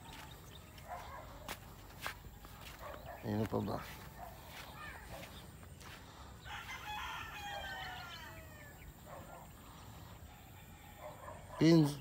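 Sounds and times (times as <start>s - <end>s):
rooster crowing: 6.4s - 9.0s, 10.3s - 11.5s.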